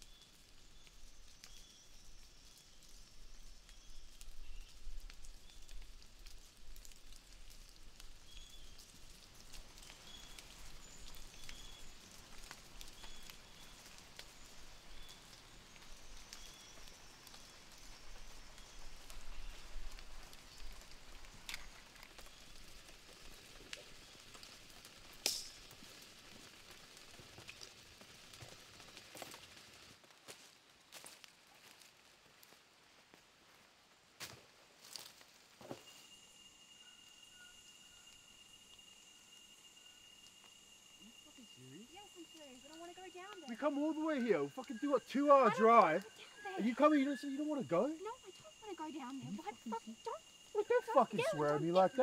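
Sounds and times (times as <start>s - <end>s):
small ticks: 0.0s - 30.0s, 37.6s - 47.1s.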